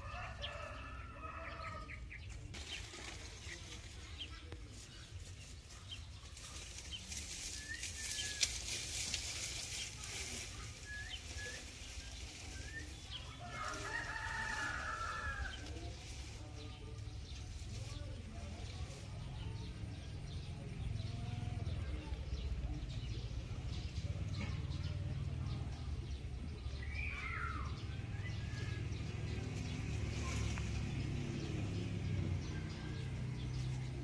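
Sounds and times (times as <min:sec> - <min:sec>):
rooster crowing: 0:13.4 - 0:15.6.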